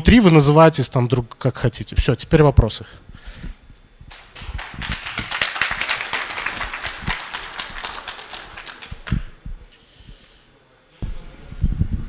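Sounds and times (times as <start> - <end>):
audience applauding: 4.1 - 9.4.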